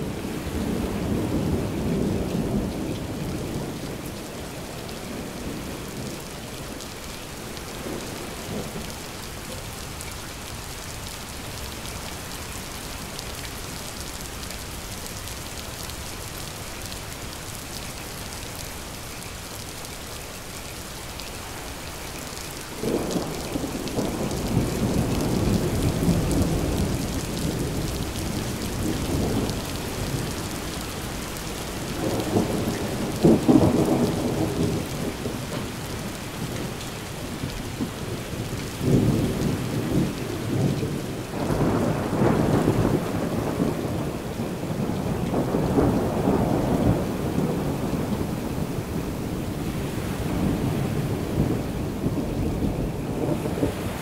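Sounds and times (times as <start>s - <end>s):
steady rain: 0.0s - 54.0s
rolling thunder: 31.8s - 36.8s, 37.4s - 54.0s.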